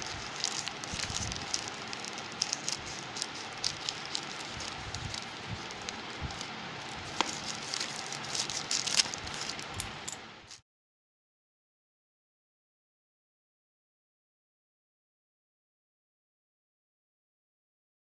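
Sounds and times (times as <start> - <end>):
plastic mailer bag crinkling: 0.0 - 10.6
scissors cutting plastic: 0.0 - 10.6.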